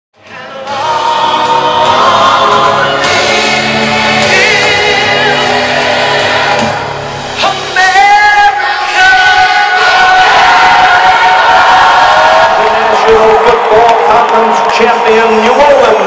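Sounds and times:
choir singing held chords: 0.2s - 12.7s.

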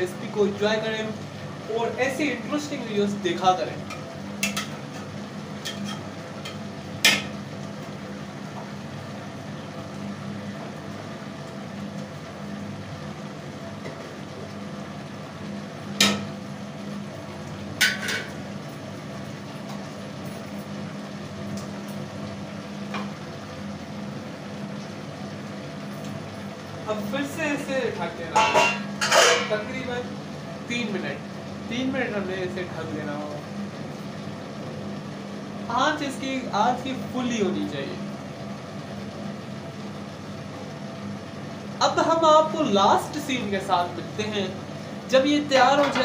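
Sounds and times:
low background hum: 0.0s - 46.0s
metal spoon stirring in pot: 28.4s - 29.6s.

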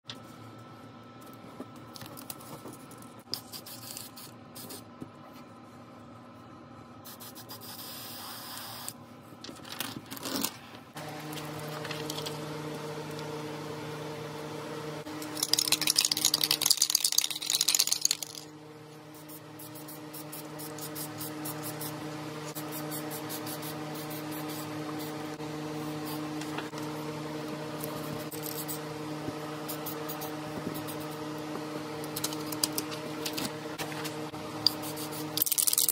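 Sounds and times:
steady low hum: 8.9s - 35.9s.

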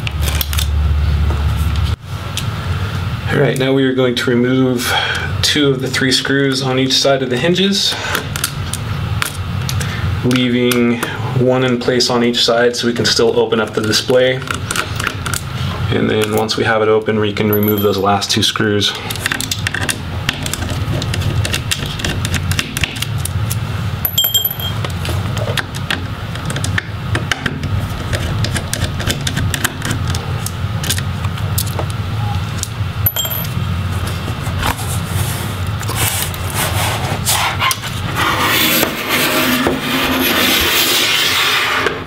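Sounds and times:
steady low hum: 17.3s - 18.5s, 23.2s - 25.5s, 29.9s - 38.2s.

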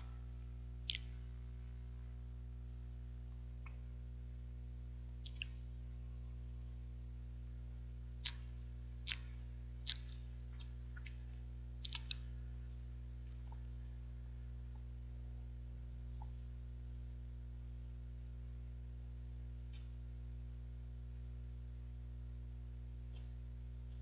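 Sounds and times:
low hum: 0.0s - 24.0s
wet mouth clicks and lip smacks: 0.8s - 1.2s, 5.2s - 5.6s, 8.2s - 11.2s, 11.8s - 12.3s.

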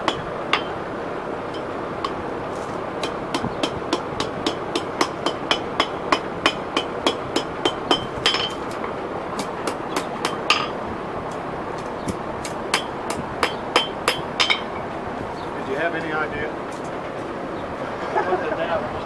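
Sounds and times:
hammer striking iron on anvil: 0.0s - 0.8s, 1.5s - 2.2s, 3.0s - 10.8s, 12.1s - 14.8s.

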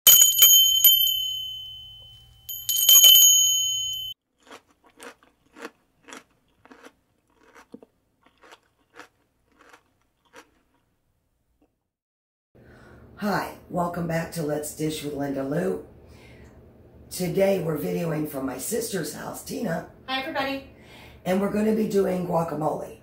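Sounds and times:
small bell ringing: 0.1s - 4.2s.

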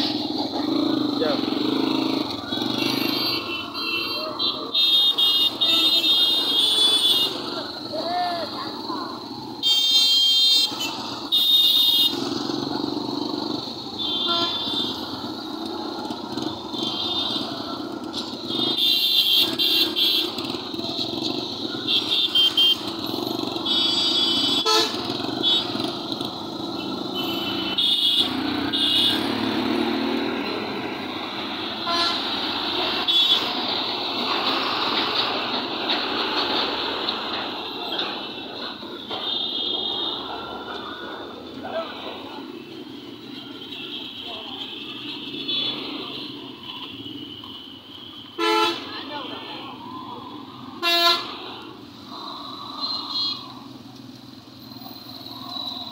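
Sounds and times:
road traffic passing: 0.0s - 55.9s
vehicle horns honking: 1.5s - 7.7s, 9.6s - 12.3s, 13.9s - 15.2s, 16.3s - 26.0s, 26.8s - 30.8s, 31.6s - 33.6s, 38.0s - 40.4s, 43.2s - 49.4s, 50.8s - 51.4s, 52.8s - 53.5s.

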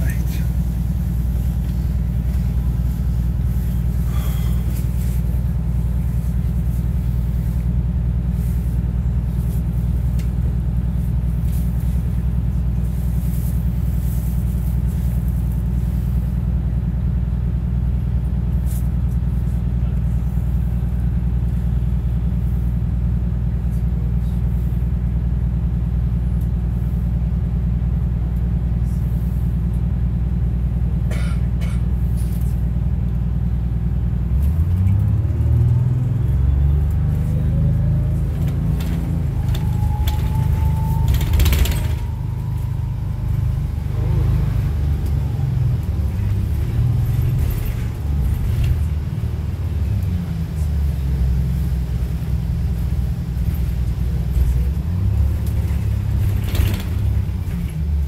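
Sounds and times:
bus diesel engine drone: 0.0s - 58.0s.

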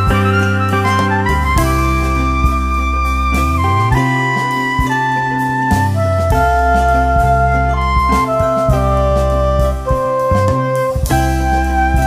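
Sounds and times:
steady bass: 0.0s - 12.0s
sustained melody line: 0.0s - 12.0s.

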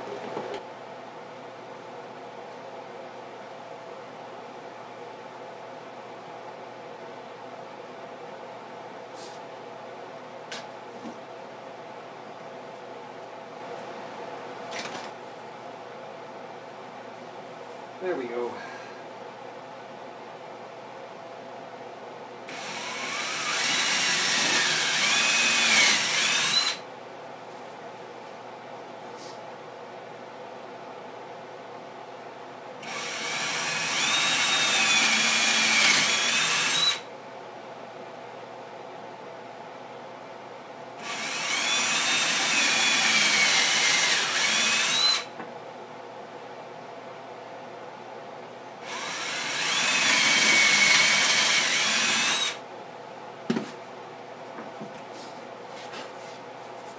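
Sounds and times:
power drill motor whine: 22.5s - 26.8s, 32.8s - 37.1s, 41.0s - 45.3s, 48.8s - 52.6s.

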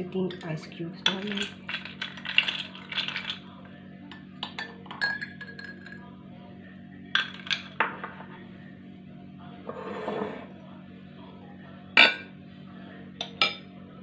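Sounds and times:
ice cubes clinking against glass: 1.0s - 3.4s, 4.4s - 6.0s, 7.2s - 7.8s.

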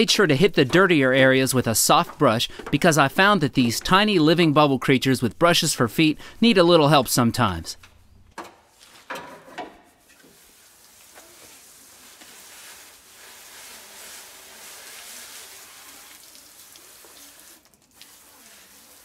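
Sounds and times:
hose spraying water on metal: 10.0s - 19.0s.

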